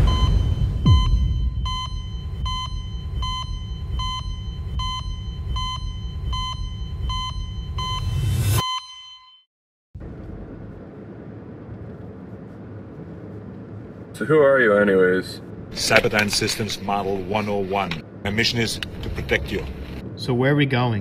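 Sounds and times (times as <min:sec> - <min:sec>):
low rumble: 0:00.0 - 0:08.3, 0:10.0 - 0:14.2, 0:15.4 - 0:21.0
electronic beeper tone: 0:00.0 - 0:09.4.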